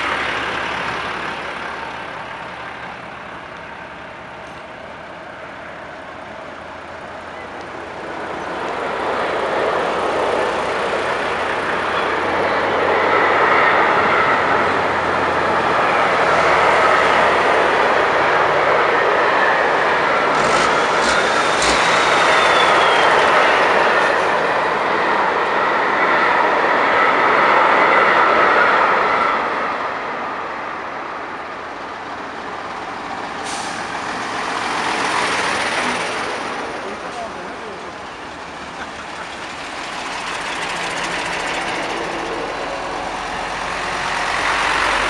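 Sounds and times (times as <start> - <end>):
heavy trucks driving past: 0.0 - 25.9, 31.0 - 45.0
diesel engines and tyres: 0.0 - 45.0.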